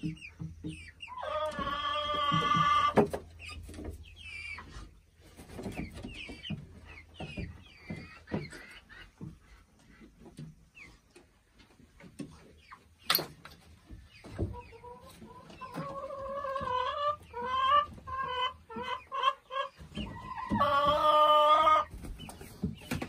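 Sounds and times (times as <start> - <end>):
hen cackling: 14.8 - 21.9.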